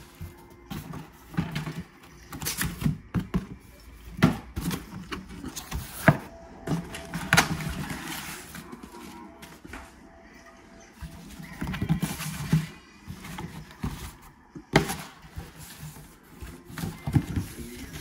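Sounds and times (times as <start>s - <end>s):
cardboard flaps rustling: 11.0s - 18.0s.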